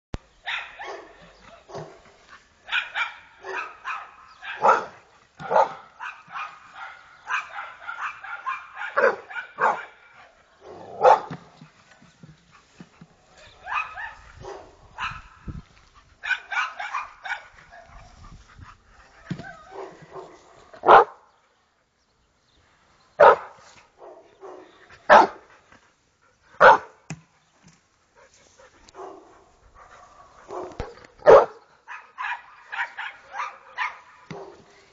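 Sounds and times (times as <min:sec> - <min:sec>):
dog barking and yipping: 0:00.4 - 0:02.0, 0:02.6 - 0:10.1, 0:10.7 - 0:11.4, 0:13.5 - 0:15.4, 0:16.2 - 0:18.2, 0:19.3 - 0:21.2, 0:23.2 - 0:25.4, 0:26.6 - 0:27.0, 0:28.9 - 0:34.6.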